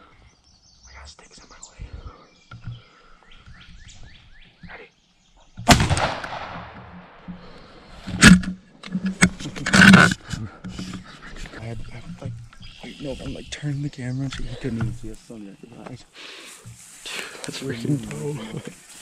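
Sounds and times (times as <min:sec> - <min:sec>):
small birds chirping: 0:00.0 - 0:05.6, 0:08.6 - 0:19.0
shotgun blast: 0:05.7 - 0:07.2.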